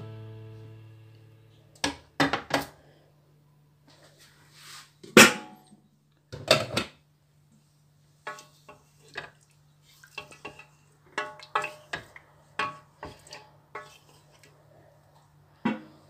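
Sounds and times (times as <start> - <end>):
wooden spoon knocking metal pot: 8.3 - 8.5, 10.2 - 14.0.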